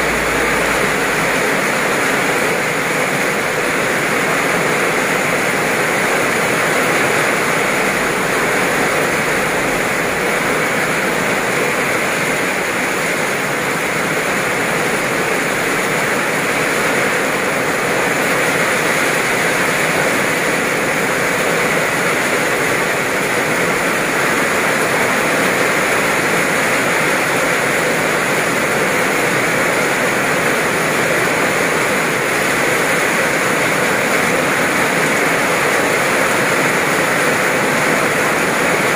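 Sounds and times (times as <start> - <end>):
heavy rain on pavement: 0.0 - 38.9.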